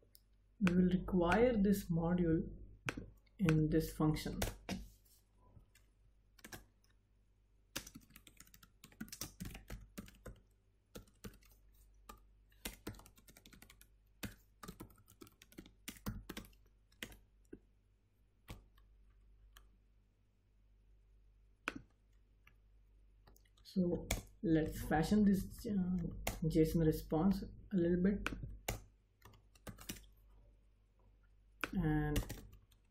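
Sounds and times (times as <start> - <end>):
typing on computer keyboard: 5.7 - 6.8, 7.7 - 17.2, 28.2 - 30.1, 31.6 - 32.9.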